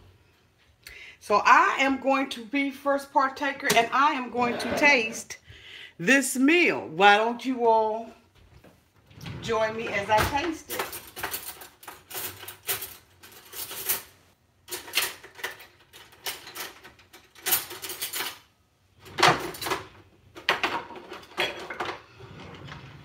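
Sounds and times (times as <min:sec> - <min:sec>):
cutlery clattering in a drawer: 0:09.8 - 0:23.0.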